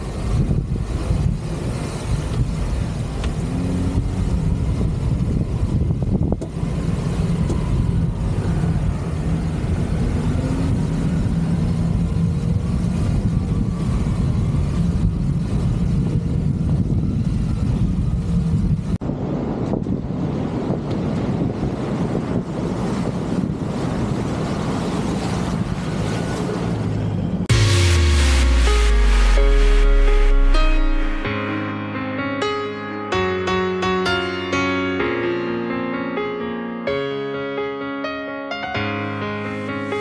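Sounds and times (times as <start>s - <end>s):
car engine running: 27.5s - 31.3s.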